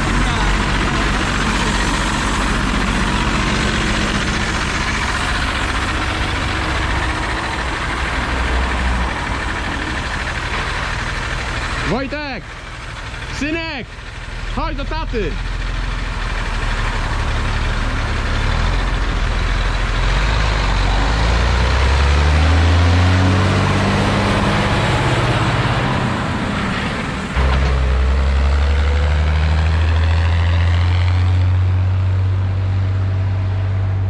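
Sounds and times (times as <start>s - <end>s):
tractor diesel engine under load: 0.0s - 34.0s.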